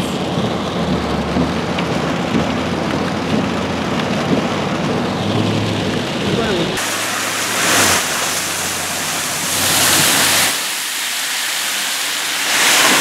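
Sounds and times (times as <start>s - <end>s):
tyres ploughing through floodwater: 0.0s - 13.0s.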